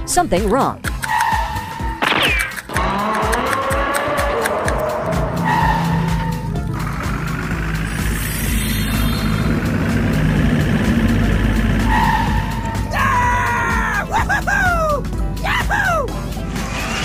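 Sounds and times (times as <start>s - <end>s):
background music: 0.0s - 17.0s
car engine rising in pitch: 2.7s - 13.8s, 16.2s - 17.0s.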